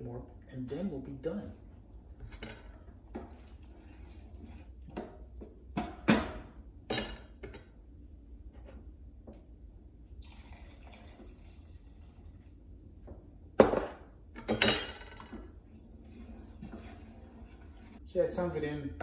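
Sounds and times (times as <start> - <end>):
liquid pouring into sauce: 10.2 - 12.6.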